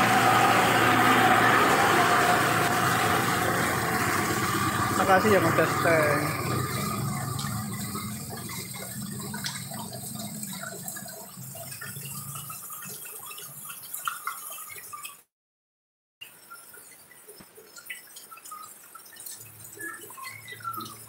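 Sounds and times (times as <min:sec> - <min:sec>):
low engine hum: 0:00.0 - 0:12.3
heavy rain on a street: 0:00.0 - 0:13.3
drips and splashes: 0:00.0 - 0:15.3, 0:16.2 - 0:21.0.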